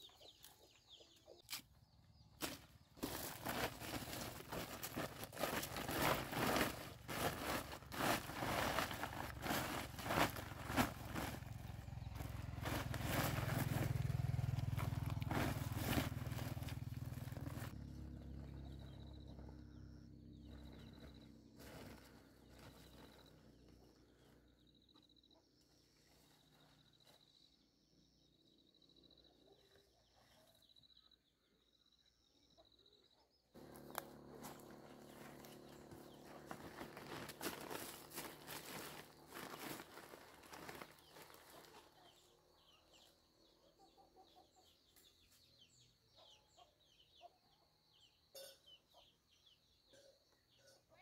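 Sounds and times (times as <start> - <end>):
plastic sack rustling and crackling: 2.4 - 14.0, 14.6 - 17.8, 33.6 - 41.8.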